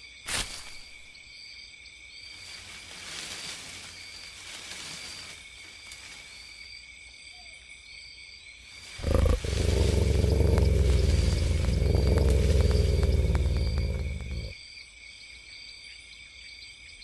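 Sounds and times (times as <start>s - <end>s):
insects chirring: 0.0s - 17.0s
deep wolf growl: 9.0s - 14.6s.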